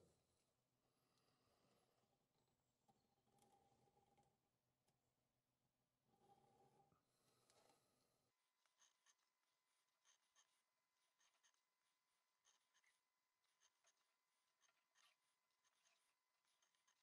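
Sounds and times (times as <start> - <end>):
pencil scratching on paper: 8.5 - 17.0.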